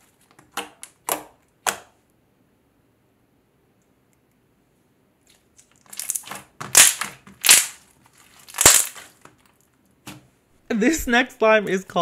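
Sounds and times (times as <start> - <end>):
slime squishing: 5.3 - 10.2.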